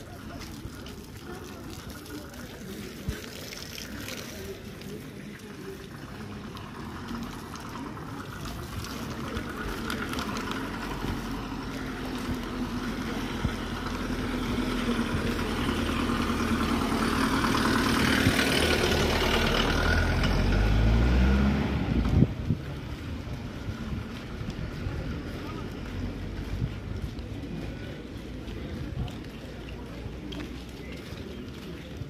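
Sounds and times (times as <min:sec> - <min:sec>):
car engine passing by: 0:06.0 - 0:26.9.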